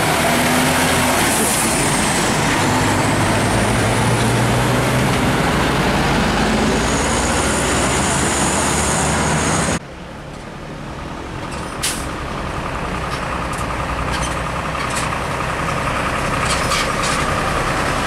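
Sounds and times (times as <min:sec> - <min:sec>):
diesel trucks approaching: 0:00.0 - 0:18.0
traffic noise: 0:00.0 - 0:18.0.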